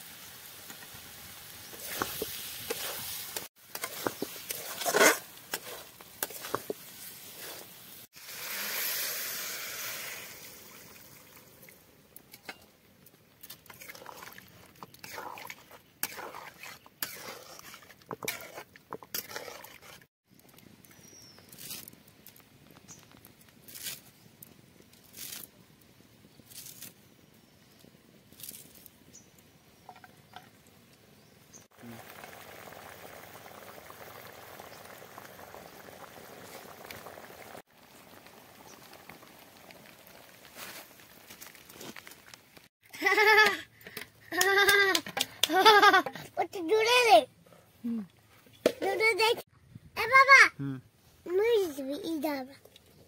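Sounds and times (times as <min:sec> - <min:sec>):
sizzling in hot pan: 0:00.0 - 0:11.2, 0:31.6 - 0:41.3
metal spatula scraping a wok: 0:01.7 - 0:07.8, 0:15.0 - 0:20.1.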